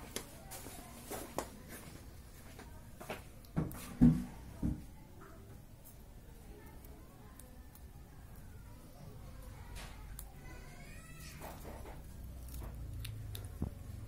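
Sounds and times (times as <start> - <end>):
light knocks and thumps: 3.0 - 4.9.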